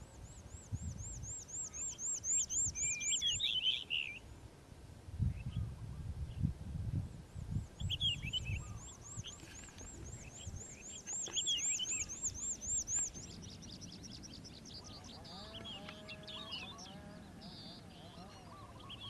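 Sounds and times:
lark song: 0.0s - 4.4s, 7.6s - 19.0s
bird chirps and trills: 0.5s - 4.2s, 7.8s - 19.0s.

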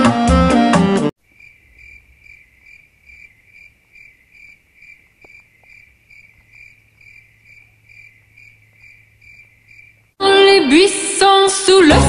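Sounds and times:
cricket chirping: 1.2s - 10.2s.

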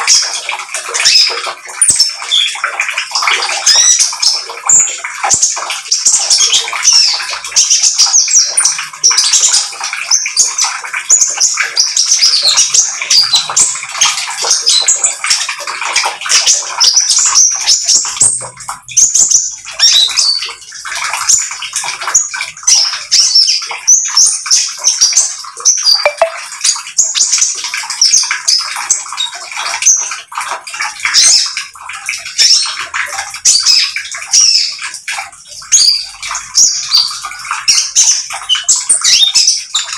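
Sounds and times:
bird twittering song: 16.3s - 30.0s.

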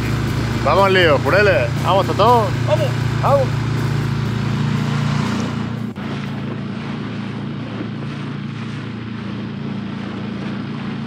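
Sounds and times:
small outboard motor running: 0.0s - 11.0s
water rushing past hull: 0.0s - 11.0s.

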